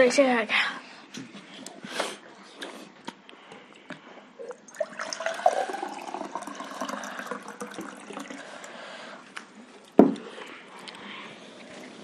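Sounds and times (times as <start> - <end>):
water pouring into a glass: 4.5 - 8.8.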